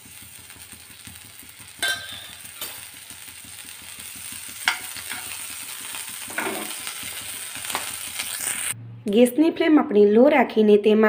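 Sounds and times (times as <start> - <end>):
butter sizzling in a pan: 0.0 - 8.8.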